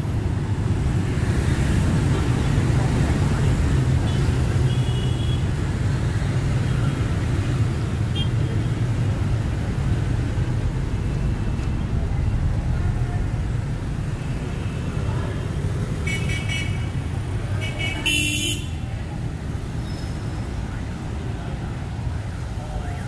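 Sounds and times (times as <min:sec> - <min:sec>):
city traffic rumble: 0:00.0 - 0:23.0.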